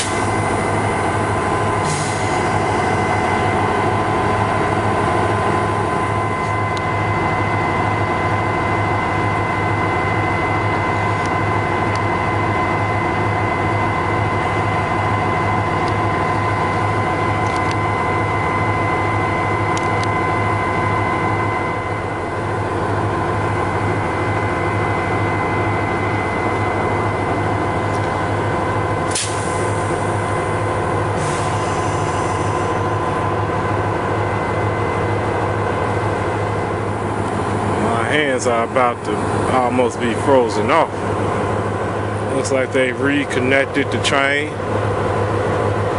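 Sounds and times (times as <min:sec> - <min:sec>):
diesel locomotive drone: 0:00.0 - 0:45.9
high steady whine: 0:00.0 - 0:45.9.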